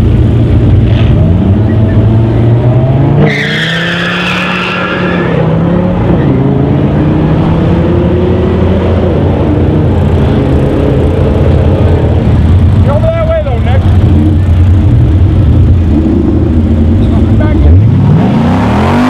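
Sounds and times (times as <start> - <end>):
low engine drone: 0.0 - 3.2
car engines revving: 0.0 - 19.0
tyre squeal: 3.2 - 5.5.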